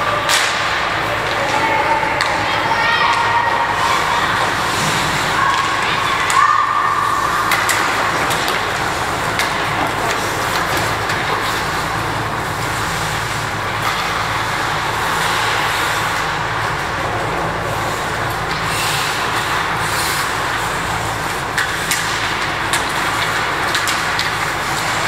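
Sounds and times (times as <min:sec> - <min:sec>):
hockey sticks and puck clacking: 0:00.0 - 0:25.0
skates scraping on ice: 0:00.0 - 0:25.0.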